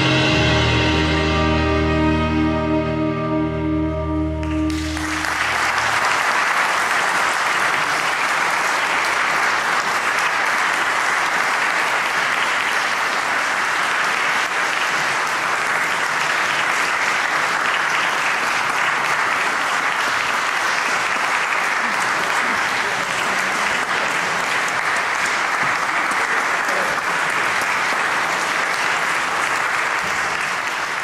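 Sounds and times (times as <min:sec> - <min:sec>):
jazz band chord: 0:00.0 - 0:05.5
audience applause: 0:04.4 - 0:31.0.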